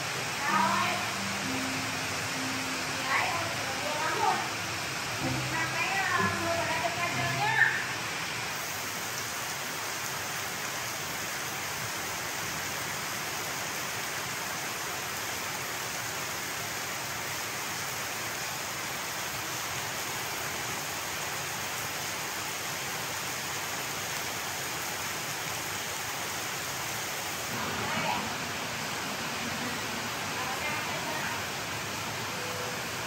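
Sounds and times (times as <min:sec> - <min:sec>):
water hissing: 0:00.0 - 0:09.8.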